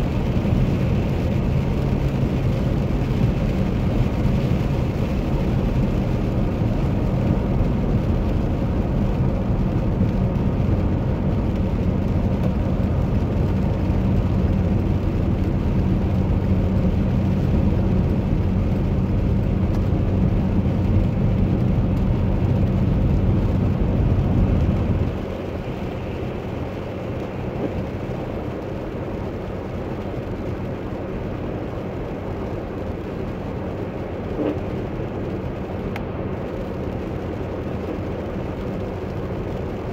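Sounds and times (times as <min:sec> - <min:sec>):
low engine hum: 0:00.0 - 0:39.9
road rumble: 0:00.0 - 0:39.9.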